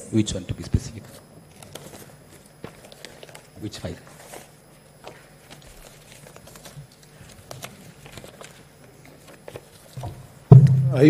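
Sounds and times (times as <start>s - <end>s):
low room hum: 0.0s - 11.0s
papers and binders rustling: 0.9s - 10.4s.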